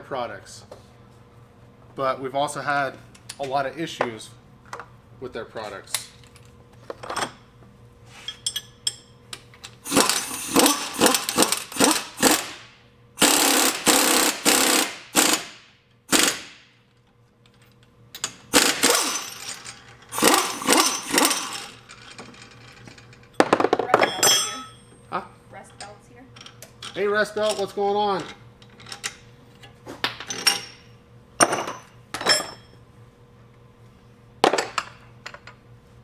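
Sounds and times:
pneumatic impact wrench hammering: 9.8 - 16.8, 18.2 - 21.8.

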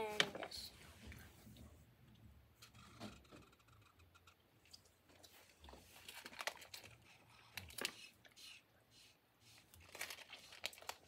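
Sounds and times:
faint crinkly clicks: 3.6 - 8.1, 9.7 - 11.0.

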